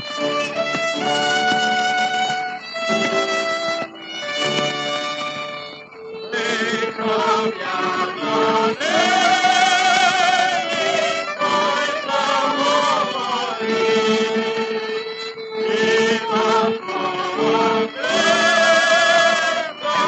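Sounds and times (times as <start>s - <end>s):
small orchestra playing: 0.0s - 20.0s
vocal quartet singing: 6.3s - 20.0s.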